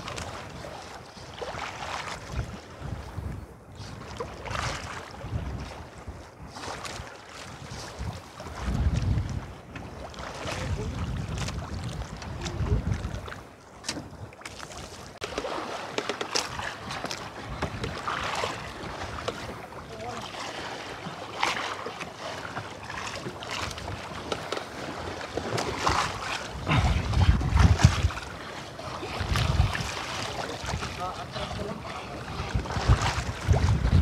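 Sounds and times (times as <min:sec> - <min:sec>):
wind rumble on microphone: 0:00.0 - 0:15.3, 0:16.4 - 0:21.7, 0:22.5 - 0:34.0.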